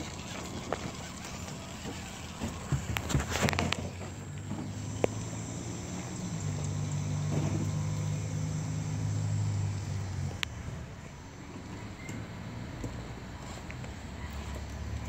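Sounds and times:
electric motor humming: 0:00.0 - 0:10.5.

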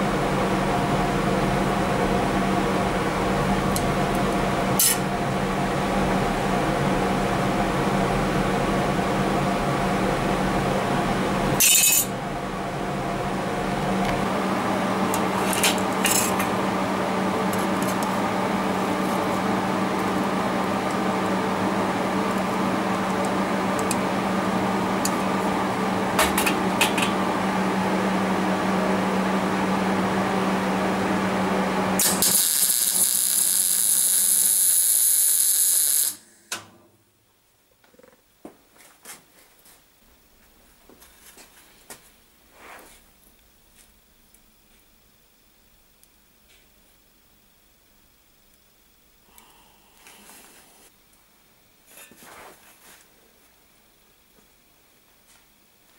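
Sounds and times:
machine hum: 0:00.0 - 0:38.2
welding arc crackling hiss: 0:32.0 - 0:36.5.

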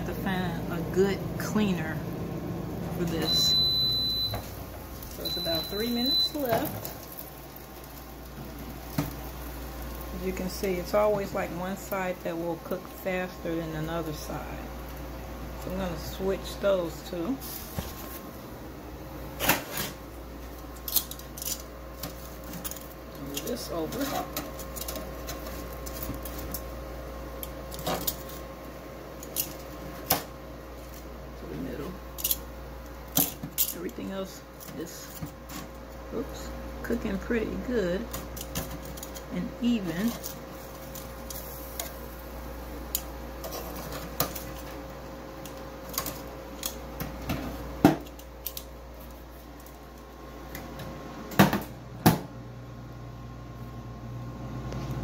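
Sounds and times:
steady hum: 0:00.0 - 0:55.0.

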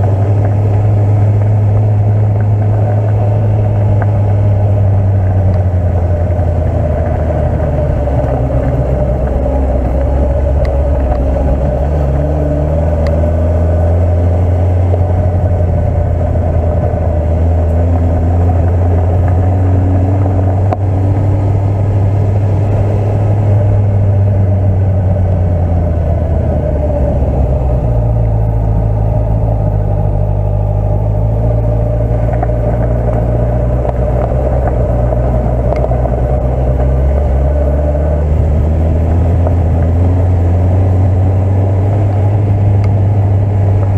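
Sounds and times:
motorcycle engine at low revs: 0:00.0 - 0:43.9.

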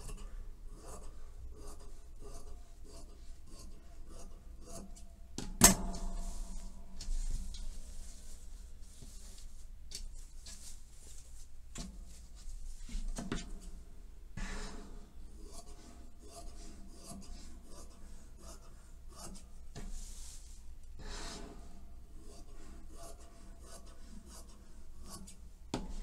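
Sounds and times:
fabric being handled: 0:05.9 - 0:13.4.

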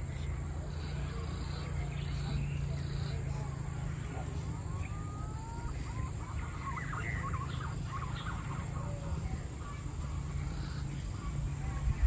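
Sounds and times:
birds calling: 0:00.0 - 0:12.0
wind on microphone: 0:11.6 - 0:12.0.

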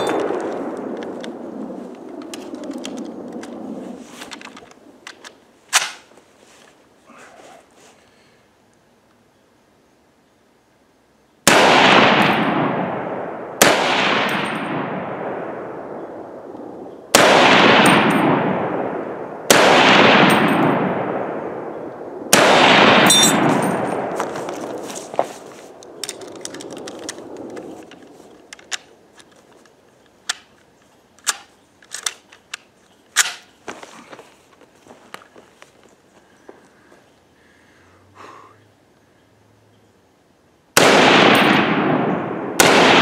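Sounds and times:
rifle shots with rolling echo: 0:00.0 - 0:06.1, 0:11.4 - 0:29.3, 0:40.8 - 0:43.0
rifle handling clicks and knocks: 0:00.0 - 0:06.8, 0:23.0 - 0:36.0
metallic ping: 0:23.1 - 0:24.0.

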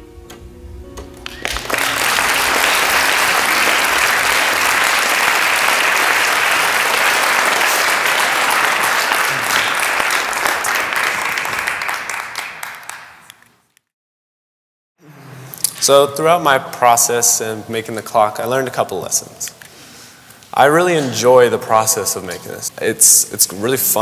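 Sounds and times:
audience applauding: 0:01.2 - 0:13.5.

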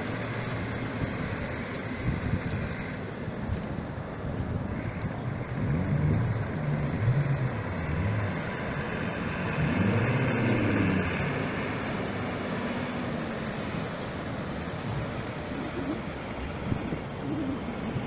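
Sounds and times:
engine revving: 0:04.8 - 0:13.3
breaking surf: 0:06.0 - 0:18.0.

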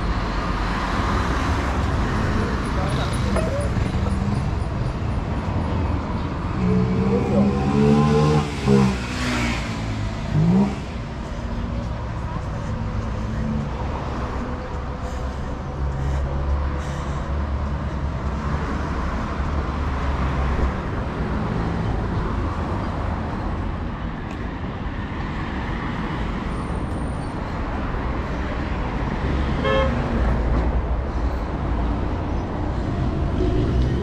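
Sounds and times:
vehicle engines humming: 0:00.0 - 0:34.0
car horn toot: 0:29.6 - 0:30.0.

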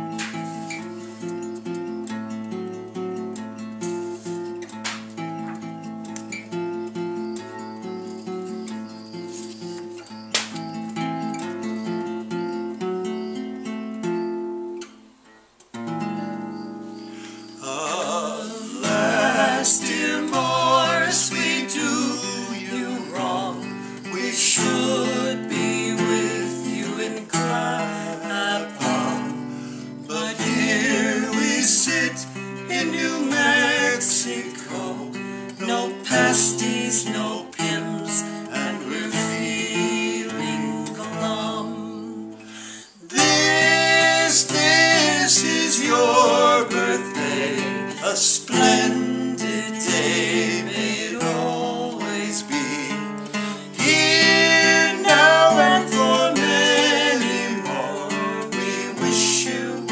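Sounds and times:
acoustic guitar playing: 0:00.0 - 0:59.9
man and woman singing: 0:17.2 - 0:59.9.

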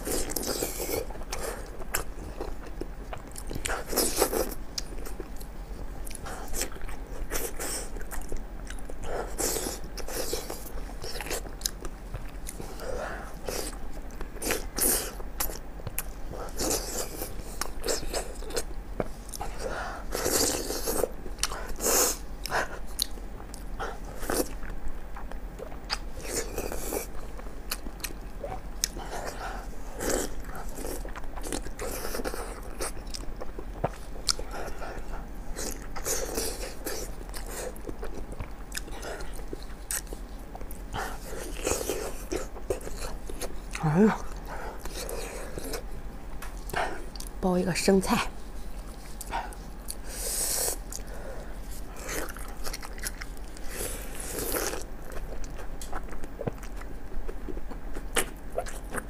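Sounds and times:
wet chewing and biting: 0:13.4 - 0:47.4, 0:48.7 - 0:59.0.

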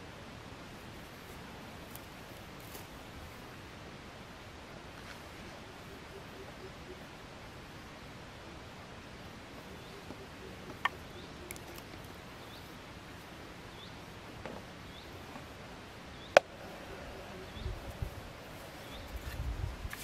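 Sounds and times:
hand digging in dry dirt: 0:17.8 - 0:20.0.

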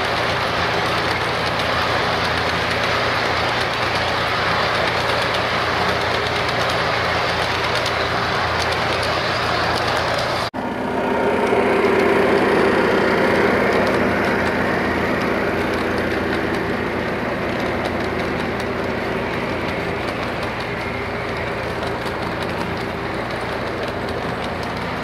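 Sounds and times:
electronic diesel engine sound: 0:00.0 - 0:25.0
model train wheels on rails: 0:00.0 - 0:25.0.

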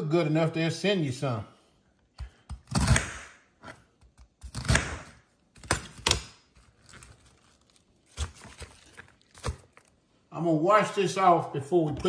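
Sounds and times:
cabbage pieces rustling: 0:06.5 - 0:10.0
cabbage leaves crunching: 0:06.8 - 0:09.9.

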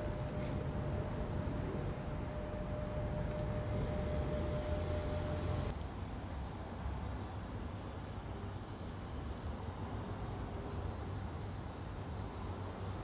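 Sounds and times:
low rumble: 0:00.0 - 0:05.7
steady hum: 0:00.0 - 0:05.7
insect chirping: 0:00.0 - 0:13.0.

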